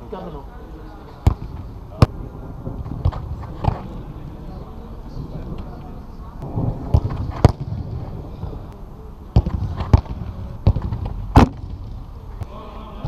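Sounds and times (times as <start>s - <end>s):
background noise: 0.0s - 13.0s
ball striking goal frame: 1.2s - 4.1s, 6.4s - 8.2s, 9.3s - 12.6s
footballs kicked thudding: 1.2s - 4.2s, 6.4s - 8.7s, 9.3s - 12.5s.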